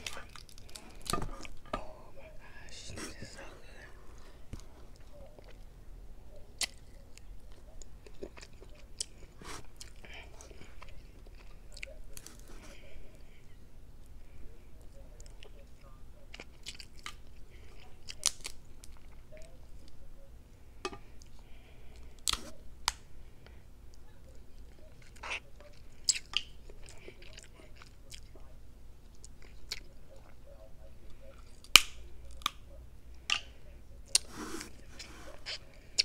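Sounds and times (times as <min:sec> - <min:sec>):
wet chewing and lip smacks: 0:00.0 - 0:01.7, 0:06.4 - 0:12.6, 0:14.8 - 0:20.0, 0:23.9 - 0:28.5
crab shells snapping: 0:18.1 - 0:18.9, 0:31.6 - 0:32.6.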